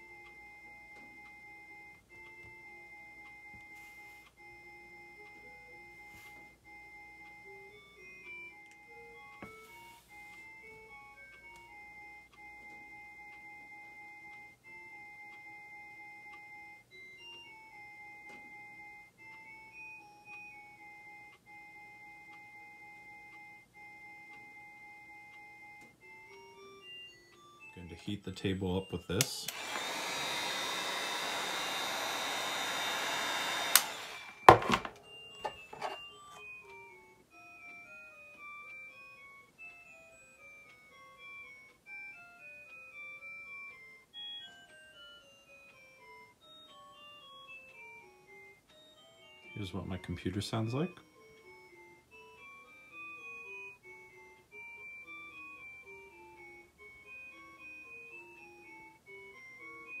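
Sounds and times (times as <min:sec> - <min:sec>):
hot-air blower running: 0:29.2 - 0:36.0.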